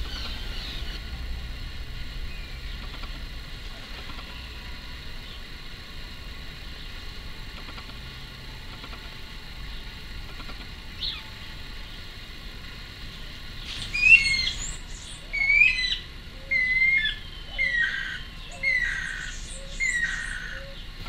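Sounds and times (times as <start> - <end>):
bird whistling falling notes: 13.7 - 18.9.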